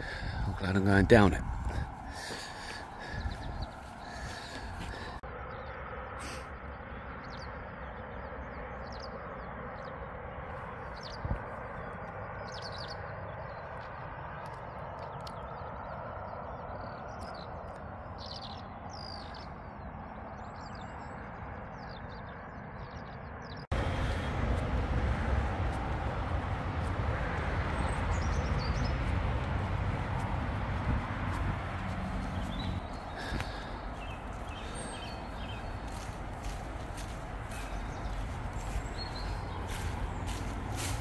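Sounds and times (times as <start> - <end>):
small birds chirping: 0.0 - 5.2, 10.5 - 41.0
steady rushing noise: 23.7 - 41.0.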